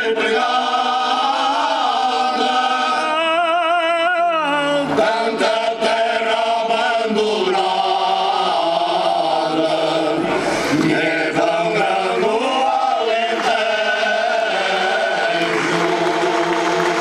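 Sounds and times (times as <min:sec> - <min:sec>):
male choir singing unaccompanied: 0:00.0 - 0:17.0
audience applause: 0:12.2 - 0:17.0.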